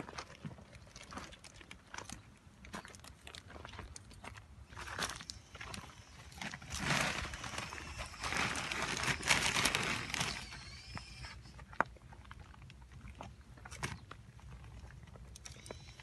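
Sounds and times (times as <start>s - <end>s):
hands and feet on stony soil: 0.0s - 16.0s.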